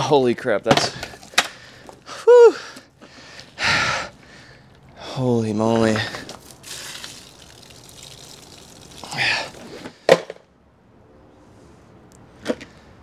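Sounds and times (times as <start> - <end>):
water pouring from a bucket: 5.8 - 9.9
water splashing on ground: 6.2 - 9.8.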